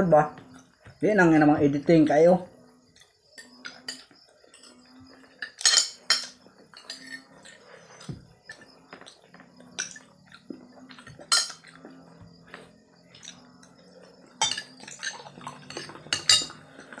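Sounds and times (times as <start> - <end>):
cutlery clinking on a plate: 5.4 - 7.6, 11.2 - 11.8, 14.4 - 17.0.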